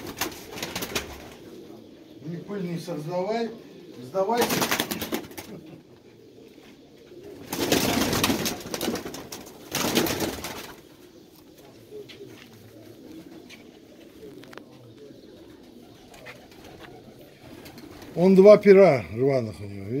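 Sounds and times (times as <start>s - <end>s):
pigeon wings flapping: 0.0s - 1.5s, 4.4s - 5.8s, 7.3s - 10.9s, 15.6s - 18.2s
pigeons cooing: 0.0s - 20.0s.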